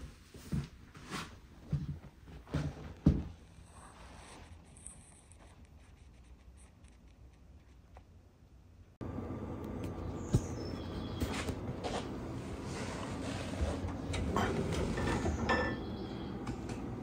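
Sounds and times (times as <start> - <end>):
faint scratching: 3.4 - 8.2.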